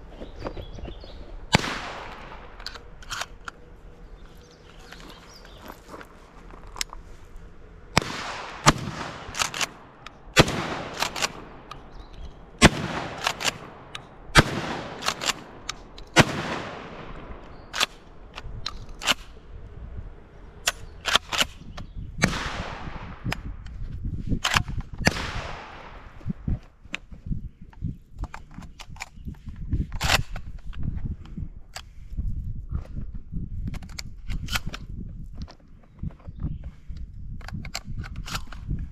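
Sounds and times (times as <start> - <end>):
gun handling clicks and knocks: 0.0 - 19.4, 20.6 - 22.5, 23.2 - 32.0, 33.6 - 38.9
shotgun shots echoing: 1.5 - 2.9, 7.9 - 19.4, 22.2 - 23.3, 25.0 - 26.2.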